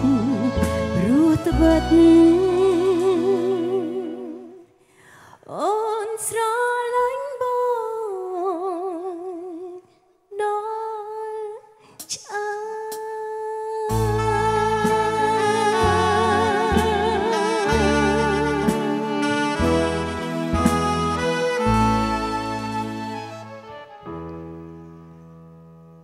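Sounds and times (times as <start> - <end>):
band backing: 0.0 - 4.0, 13.9 - 24.8
person singing with vibrato: 0.0 - 4.7, 12.2 - 20.6.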